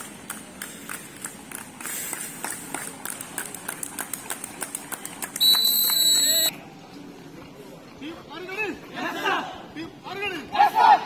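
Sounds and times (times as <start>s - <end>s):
rhythmic hand clapping: 0.0s - 6.3s.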